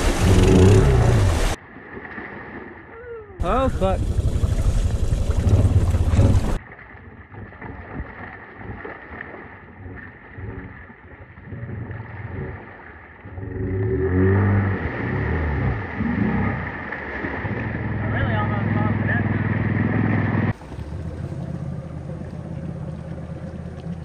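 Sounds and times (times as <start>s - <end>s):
atv engine running: 0.0s - 1.6s, 3.4s - 6.6s, 17.4s - 24.0s
water churning and splashing: 0.0s - 24.0s.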